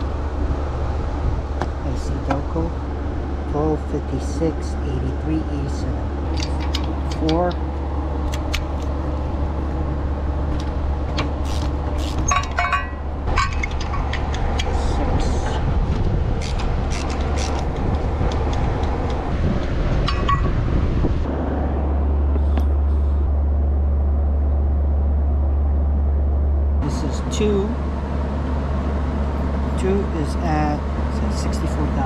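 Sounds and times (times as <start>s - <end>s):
steady low rumble: 0.0s - 32.0s
clicks and clinks of hand tools: 11.5s - 14.7s.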